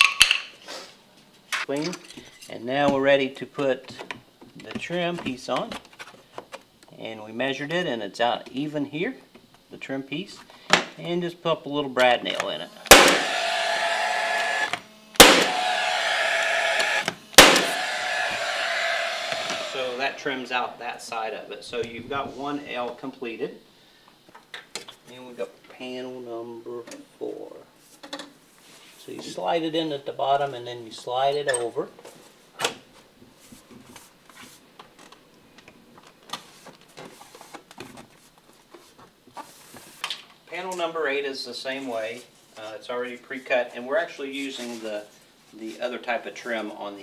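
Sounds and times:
mechanical hum: 0.0s - 47.0s
brad nailer shots: 12.8s - 20.2s.

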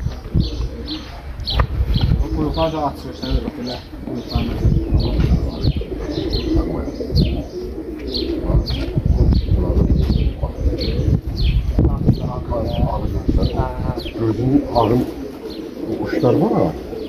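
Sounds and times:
pigeons cooing: 0.0s - 17.0s
small birds chirping: 0.0s - 17.0s.

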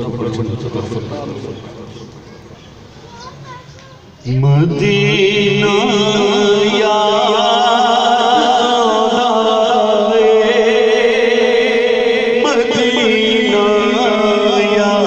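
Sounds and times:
man singing through loudspeakers: 4.2s - 15.0s.

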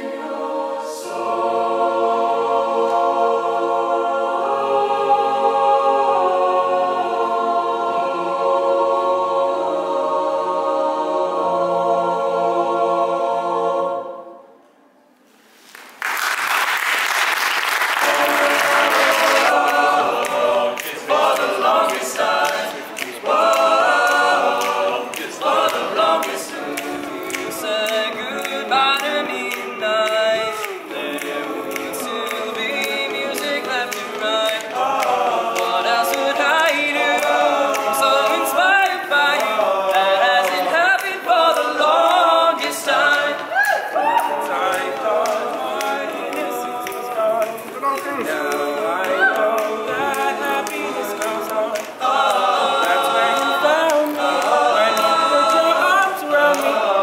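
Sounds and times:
young men singing a cappella: 0.0s - 14.2s, 17.9s - 57.0s
mixed choir singing: 0.0s - 14.8s, 16.7s - 57.0s
applause: 15.6s - 42.2s, 43.1s - 55.2s.

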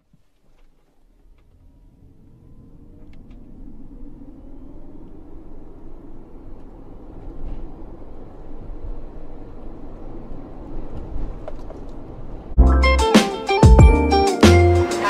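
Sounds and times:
road and tyre rumble: 0.3s - 12.6s.

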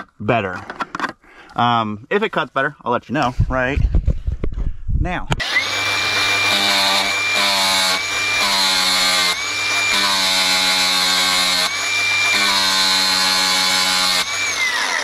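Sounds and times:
angle grinder whining: 5.4s - 15.0s
grinding disc on steel: 5.4s - 15.0s.

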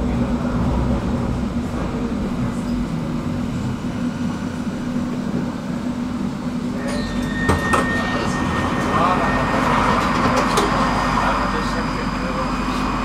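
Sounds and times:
tram rumbling and humming: 0.0s - 13.0s
steady high tone: 6.6s - 13.0s.

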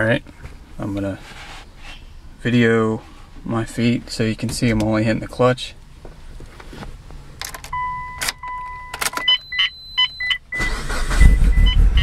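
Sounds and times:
car engine cranking and idling: 2.2s - 12.0s
ignition key clicking and turning: 7.4s - 11.0s
electronic beeps: 7.7s - 12.0s
dashboard chime: 7.8s - 10.4s.

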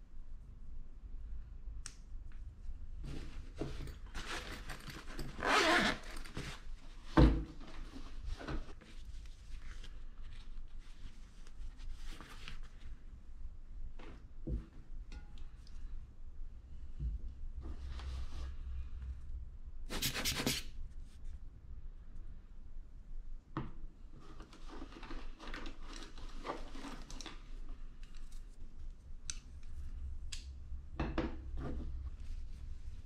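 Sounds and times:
cloth rustling: 3.1s - 7.1s, 7.7s - 13.1s.

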